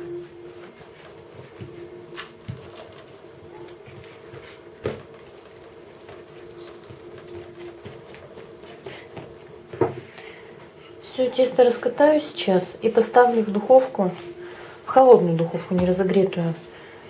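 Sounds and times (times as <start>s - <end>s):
steady background hum: 0.0s - 17.0s
hands patting soft dough: 3.6s - 10.0s.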